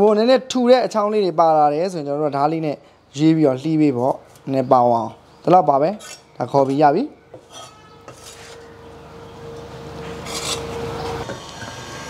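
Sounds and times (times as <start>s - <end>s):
cleaver scraping wooden board: 7.4s - 8.7s, 10.2s - 10.8s.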